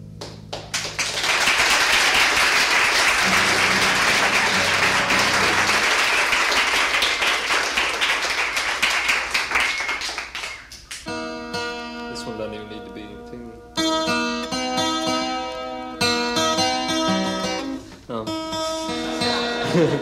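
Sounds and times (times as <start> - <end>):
audience applauding: 0.5 - 11.1.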